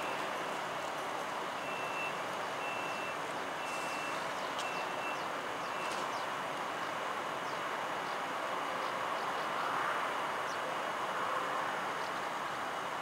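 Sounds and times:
electric locomotive noise: 0.0 - 1.8.

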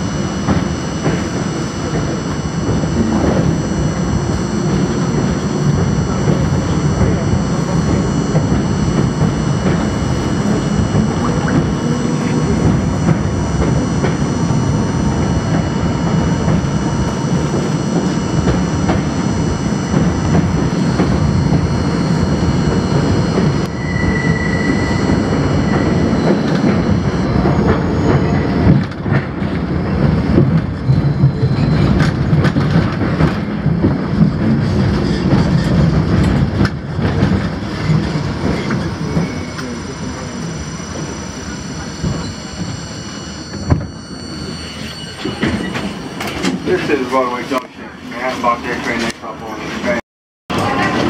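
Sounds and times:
train wheels rumbling: 0.0 - 51.0
wheel squeal: 20.8 - 28.8, 37.4 - 47.3
clickety-clack over switches: 31.8 - 38.8.

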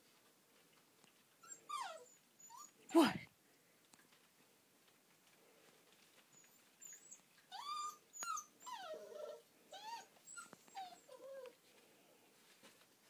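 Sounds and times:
puppies whining and yelping: 1.3 - 2.8, 6.2 - 11.6.

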